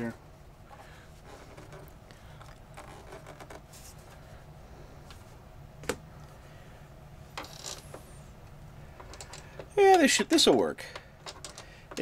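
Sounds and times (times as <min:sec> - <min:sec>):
faint scrapes and rustles: 0:00.7 - 0:04.4.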